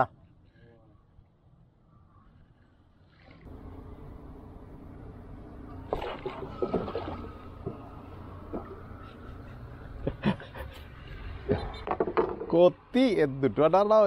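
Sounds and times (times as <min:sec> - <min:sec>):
paddle splashing in water: 0:05.8 - 0:08.9.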